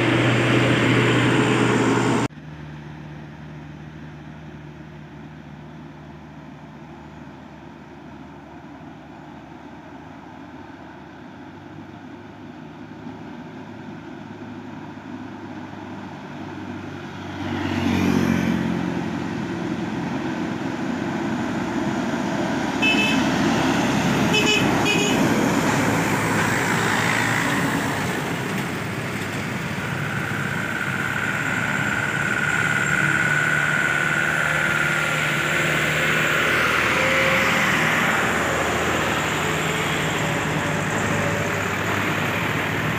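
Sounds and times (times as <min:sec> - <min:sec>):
diesel trucks passing: 0:00.0 - 0:42.9
truck horn toots: 0:22.8 - 0:25.7.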